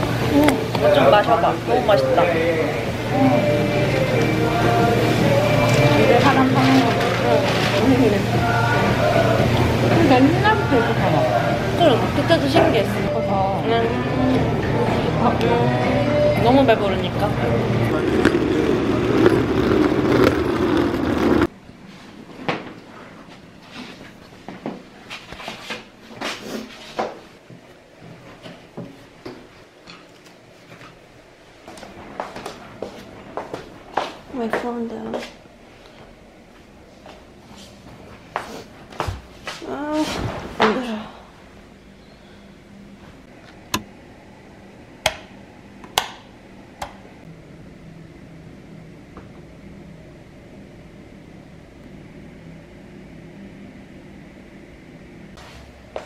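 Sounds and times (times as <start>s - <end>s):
loud steady rumbling: 0.0s - 21.6s.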